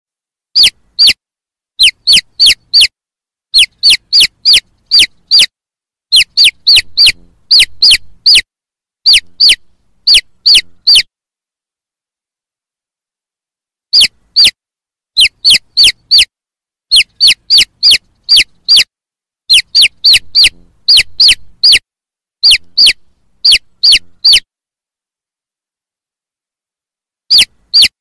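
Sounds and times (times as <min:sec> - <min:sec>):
chick peeping: 0:00.6 - 0:01.2, 0:01.8 - 0:02.9, 0:03.6 - 0:05.5, 0:06.1 - 0:08.4, 0:09.1 - 0:11.1, 0:14.0 - 0:14.6, 0:15.2 - 0:16.3, 0:16.9 - 0:18.9, 0:19.5 - 0:21.8, 0:22.4 - 0:24.4, 0:27.3 - 0:27.9.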